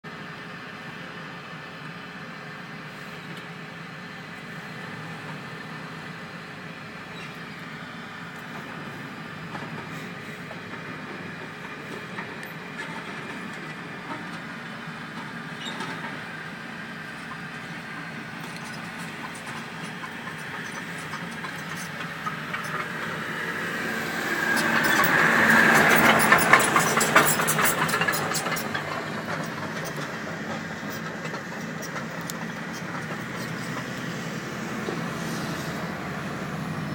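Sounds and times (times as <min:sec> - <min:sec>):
vehicle engine and road noise: 0:00.0 - 0:36.9
hiss: 0:35.1 - 0:35.9.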